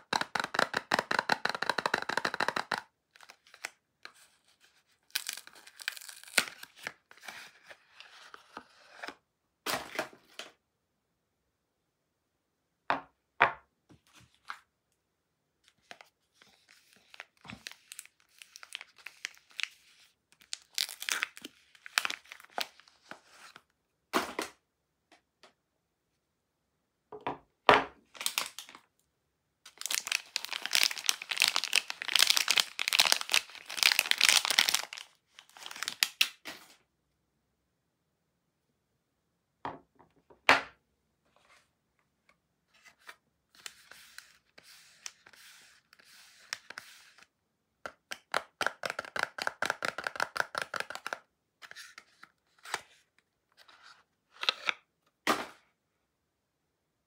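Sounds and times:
wrappers tearing and crinkling: 5.1 - 6.9, 20.4 - 22.6, 29.7 - 36.3.

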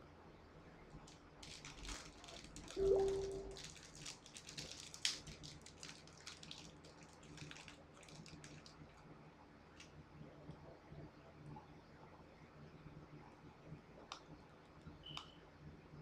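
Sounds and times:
low steady hum: 0.0 - 16.0
plastic wrapper crinkling: 1.0 - 9.0.

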